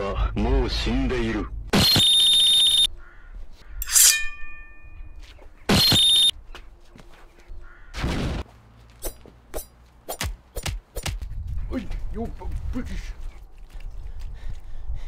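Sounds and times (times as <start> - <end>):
metallic ring: 3.8 - 5.2.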